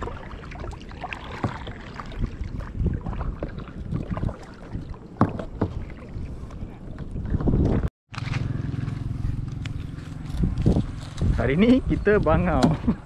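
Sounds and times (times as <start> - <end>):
paddle splashing in water: 0.0 - 9.9
paddle knocking against hull: 1.2 - 1.9, 3.0 - 6.1.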